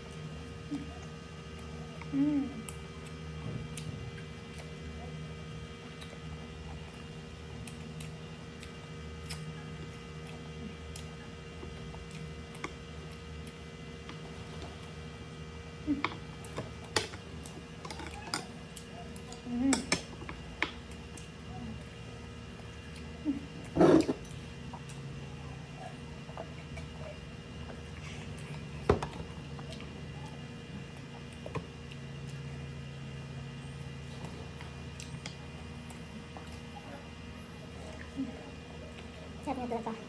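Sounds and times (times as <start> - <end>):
chewing and swallowing: 20.2 - 32.9.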